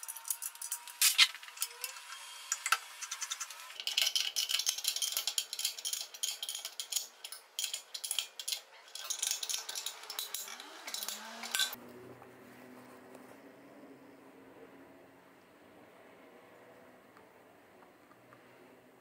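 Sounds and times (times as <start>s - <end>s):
small metal parts clinking: 0.0s - 11.8s.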